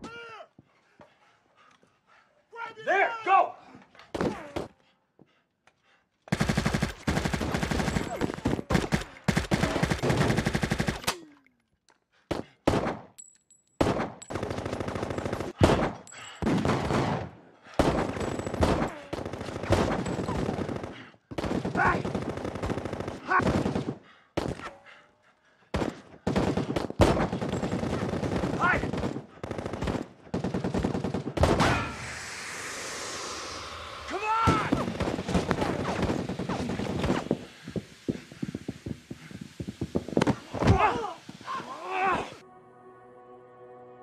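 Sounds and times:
automatic gunfire: 6.3 - 11.0, 25.8 - 31.6.

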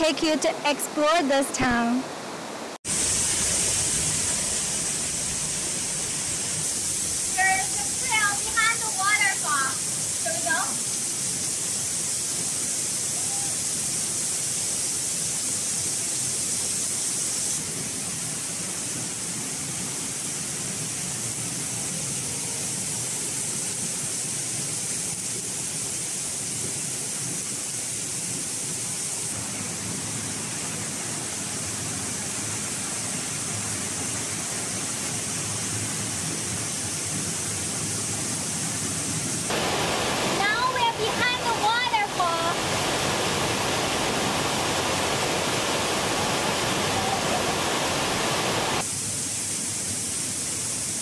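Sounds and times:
waterfall rushing: 0.0 - 15.4, 39.4 - 48.9.

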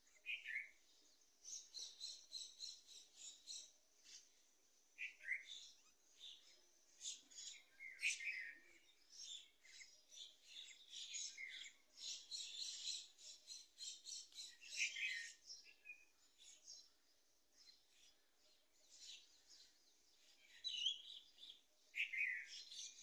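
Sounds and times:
small birds chirping: 0.0 - 23.0.

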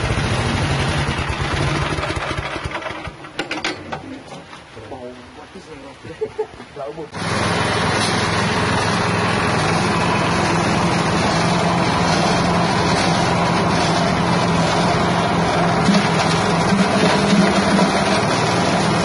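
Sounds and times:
petrol engine running: 0.0 - 3.4, 7.1 - 19.0
grinding mill rotor whirring: 7.2 - 19.0.

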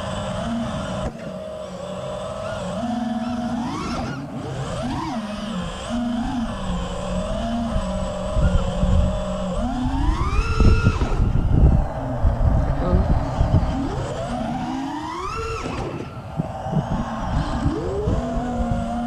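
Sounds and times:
quadcopter motors whining: 0.0 - 19.0
wind rumble: 4.6 - 19.0.

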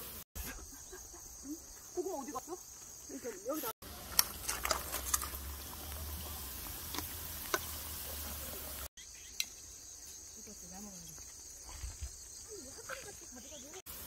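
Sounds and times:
crickets chirring: 0.0 - 14.0
oil sizzling in deep fryer: 3.8 - 8.9.

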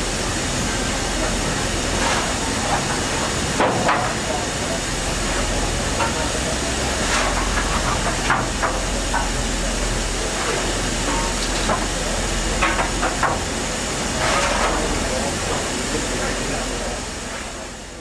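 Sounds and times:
steam hissing: 0.0 - 18.0
faint voices: 13.8 - 18.0.

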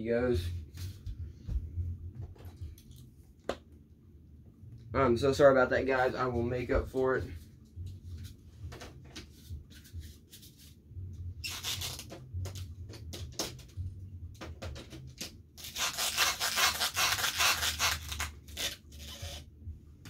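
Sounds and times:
low hum: 0.0 - 11.4, 12.3 - 14.4
rubbing and scraping: 15.6 - 19.5.

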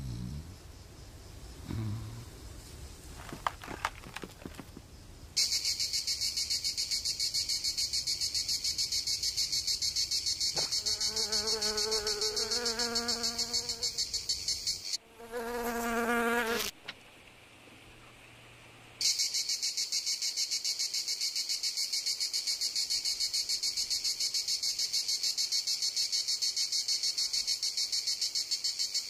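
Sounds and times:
high insect trill: 0.1 - 16.7, 19.0 - 29.0
fly wing buzz: 10.5 - 16.7.

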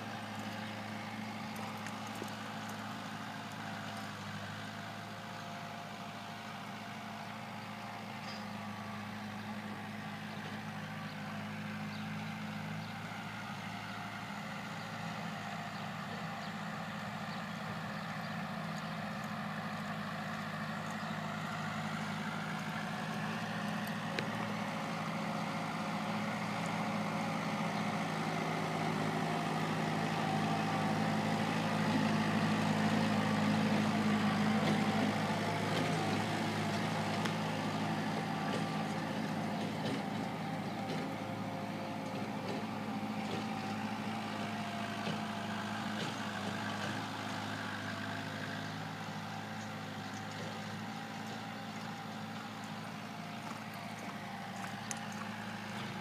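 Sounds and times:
engine hum: 0.0 - 56.0.

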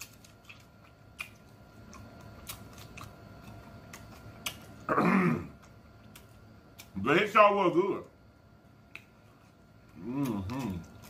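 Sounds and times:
wet chewing and lip smacks: 0.0 - 4.8
hummed moan of enjoyment: 9.9 - 11.0.

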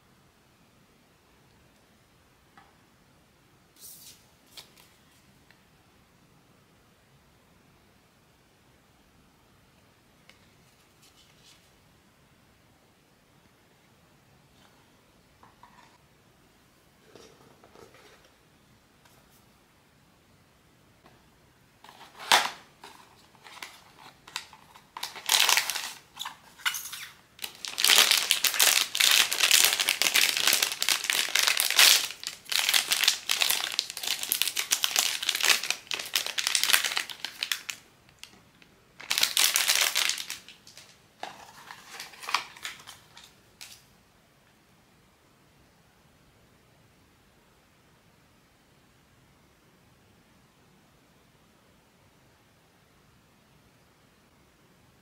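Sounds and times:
packaging crinkling: 21.8 - 38.4, 39.0 - 43.8.

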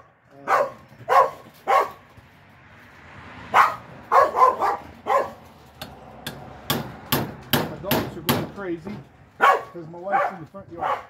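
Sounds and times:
dogs barking: 0.0 - 2.1, 3.5 - 5.5, 9.4 - 11.0.

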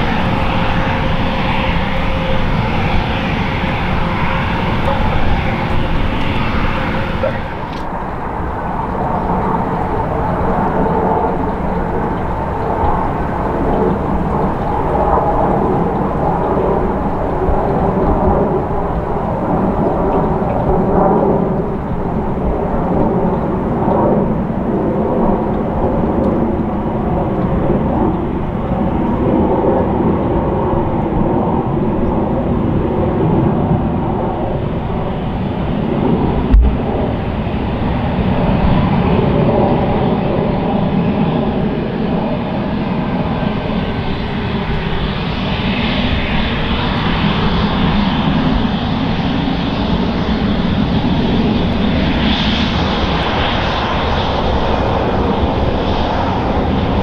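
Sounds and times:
jet engines roaring: 0.0 - 57.0
sharp thump: 36.5 - 37.0.

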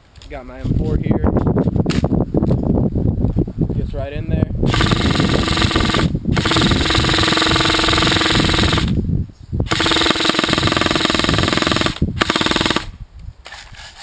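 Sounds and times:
airsoft rifle firing full-auto: 4.7 - 9.0, 9.7 - 12.9.

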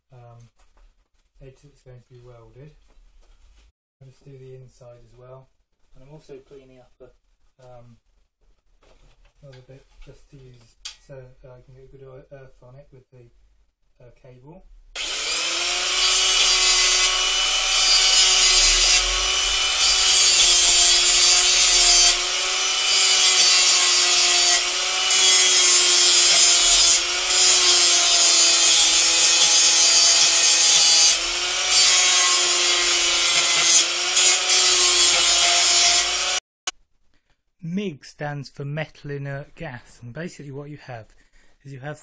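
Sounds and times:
angle grinder motor whine: 15.0 - 36.4
disc grinding steel: 15.0 - 36.4.

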